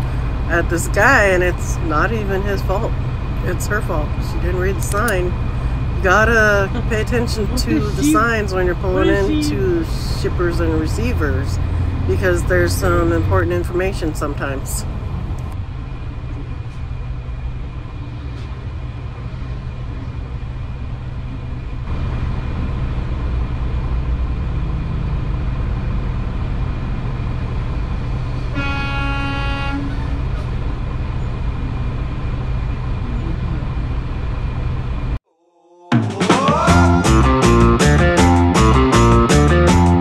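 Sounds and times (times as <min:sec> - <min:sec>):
diesel engine idling: 0:00.0 - 0:35.2
truck horn honking: 0:06.0 - 0:09.9, 0:28.5 - 0:30.2.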